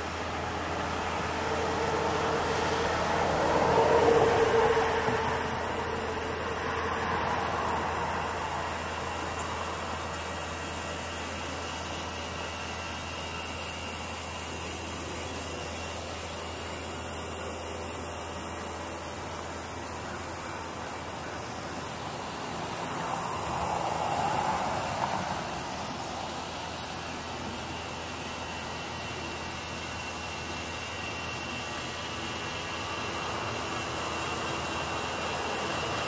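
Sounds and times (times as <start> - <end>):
road vehicle passing by: 0.0 - 10.4, 19.9 - 26.8.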